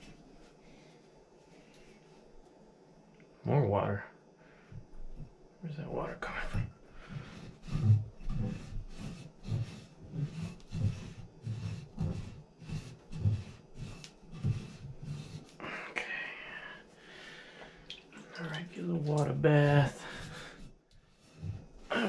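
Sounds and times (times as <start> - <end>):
rag scrubbing with dull thumps: 6.2 - 15.6, 18.2 - 22.0.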